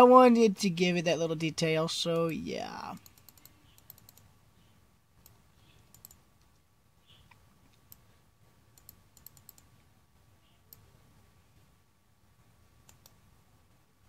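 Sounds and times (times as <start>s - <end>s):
computer keyboard and mouse clicks: 3.0s - 4.3s, 5.2s - 6.6s, 8.8s - 9.8s, 12.8s - 13.2s.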